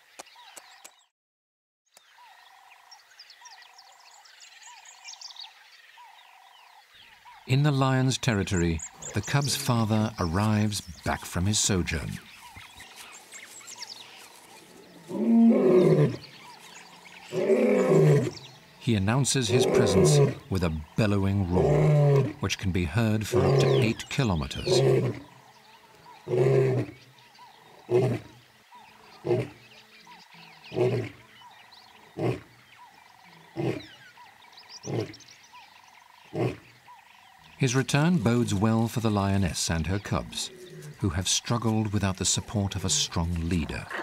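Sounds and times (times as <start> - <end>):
lion roaring: 8.9 - 9.9, 14.8 - 16.5, 17.2 - 18.5, 19.4 - 20.6, 21.4 - 22.4, 23.2 - 25.4, 26.1 - 27.0, 27.8 - 28.4, 30.7 - 31.3, 33.4 - 34.0, 34.8 - 35.2.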